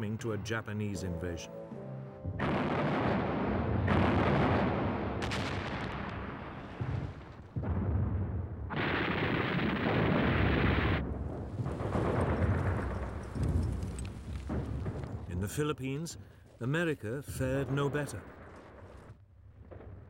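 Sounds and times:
explosions: 2.2 - 15.6
heavy rumble: 2.2 - 15.6
gunfire: 2.4 - 15.2.

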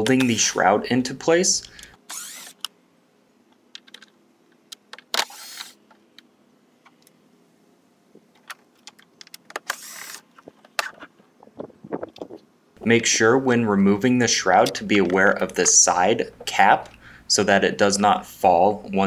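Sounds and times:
cordless driver whirring: 2.0 - 2.7, 5.2 - 5.8, 9.6 - 10.2.

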